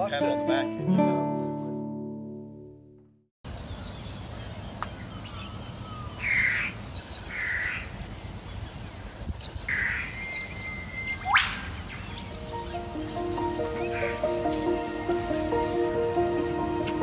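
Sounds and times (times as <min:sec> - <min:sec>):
small birds chirping: 0:03.5 - 0:17.0
crows cawing: 0:06.2 - 0:07.9
thin whistle with rising squeak: 0:10.2 - 0:11.6.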